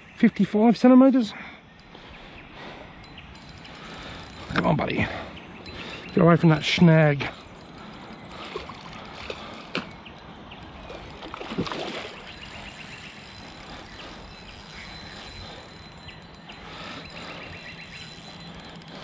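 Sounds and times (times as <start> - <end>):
road traffic hum: 1.4 - 19.0
fish splashing at water surface: 10.8 - 12.3.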